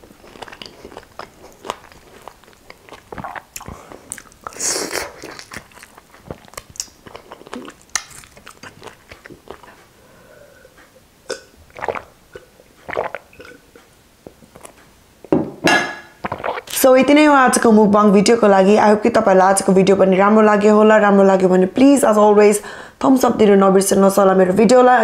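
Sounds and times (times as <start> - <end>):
swallowing and gulping: 0.0 - 9.8, 11.3 - 14.8, 16.2 - 16.9
wet chewing and lip smacks: 0.0 - 9.9, 10.8 - 14.9, 16.2 - 16.8.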